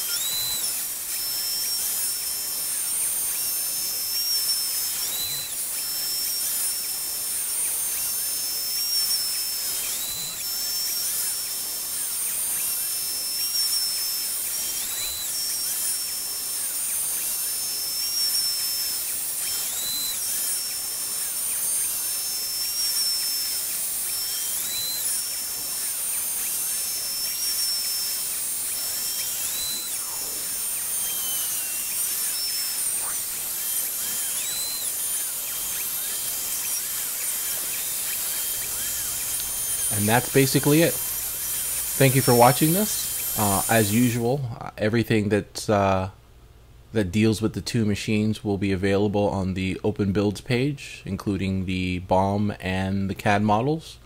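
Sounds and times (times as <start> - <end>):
cnc router spindle milling aluminium: 0.0 - 44.2.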